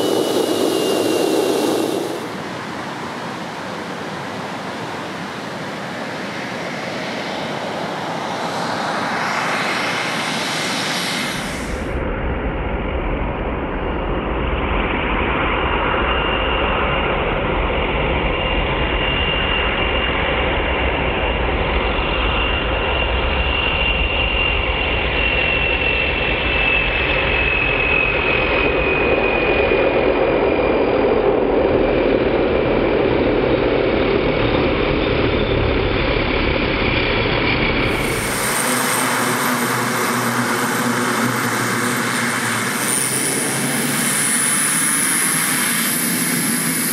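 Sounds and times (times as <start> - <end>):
propeller rumble: 0.0 - 2.9, 28.3 - 46.9
turbine engine whine: 0.0 - 46.9.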